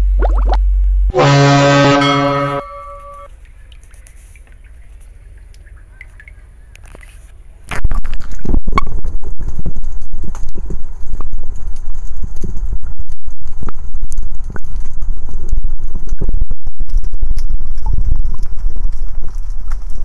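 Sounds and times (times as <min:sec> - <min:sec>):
loud horn-like blast: 0:01.1 - 0:03.3.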